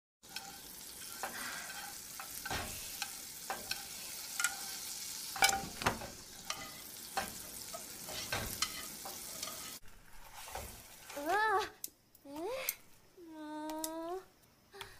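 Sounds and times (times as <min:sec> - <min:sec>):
egg sizzling in a frying pan: 0:00.2 - 0:11.7
utensils clicking against a pan: 0:00.3 - 0:09.8.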